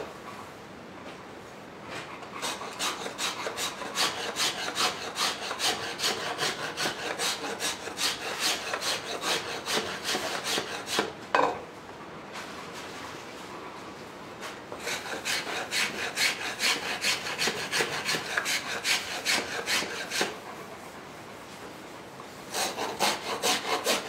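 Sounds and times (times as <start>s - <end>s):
blade shaving wood: 2.4s - 11.2s, 14.8s - 20.5s, 22.5s - 24.0s.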